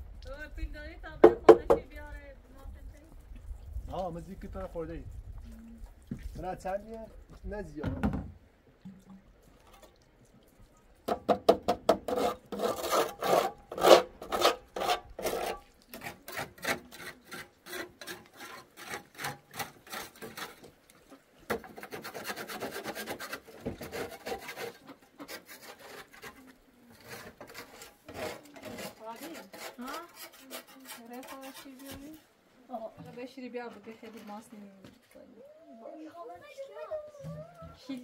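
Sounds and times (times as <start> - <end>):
rhythmic scraping strokes: 21.8 - 32.2.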